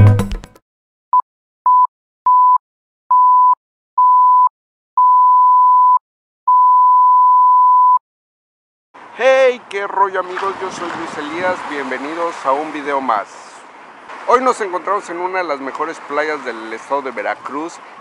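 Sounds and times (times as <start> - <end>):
music: 0.0 - 0.6
electronic beep tone: 1.7 - 8.0.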